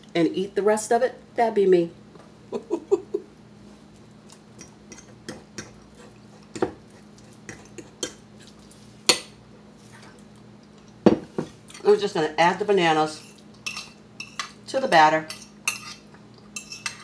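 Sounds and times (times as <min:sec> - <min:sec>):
fork tines scraping a plate: 0:15.3 - 0:17.0.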